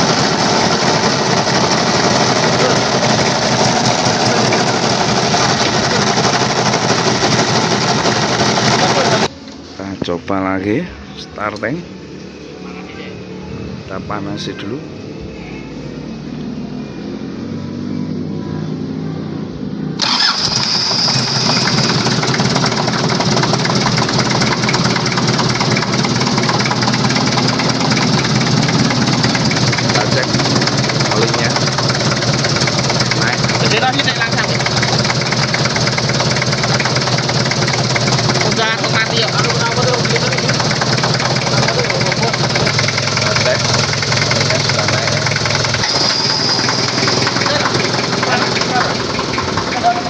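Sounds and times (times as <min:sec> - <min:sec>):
diesel engine clattering: 0:00.0 - 0:09.3, 0:20.0 - 0:50.0.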